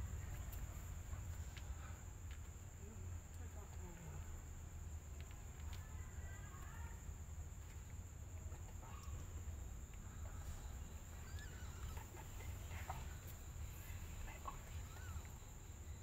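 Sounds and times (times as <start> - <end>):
steady low hum: 0.0 - 16.0
small rising squeaks: 10.2 - 15.6.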